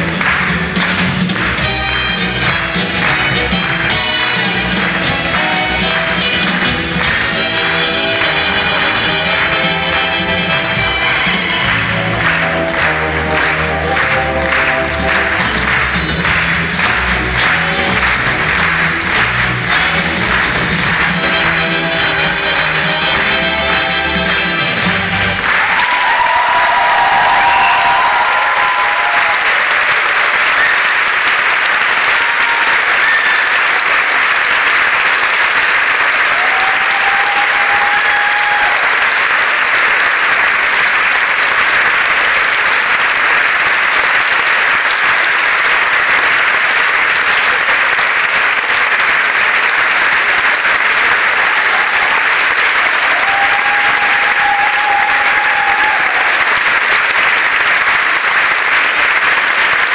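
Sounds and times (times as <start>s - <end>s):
music: 0.0s - 25.8s, 36.2s - 40.5s, 50.2s - 58.0s
audience applauding: 0.0s - 59.9s.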